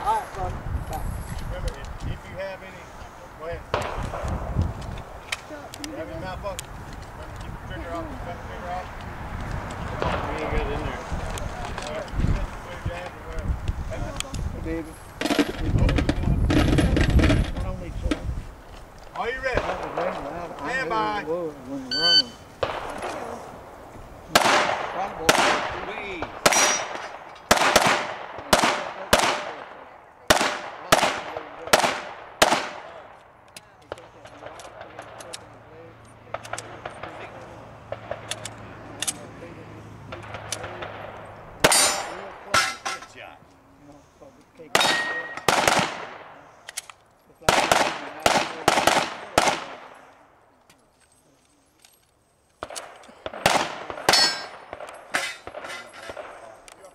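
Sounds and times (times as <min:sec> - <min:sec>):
pistol shots: 0:03.7 - 0:04.3, 0:24.3 - 0:33.2, 0:44.7 - 0:46.4, 0:47.5 - 0:50.0, 0:52.6 - 0:56.5.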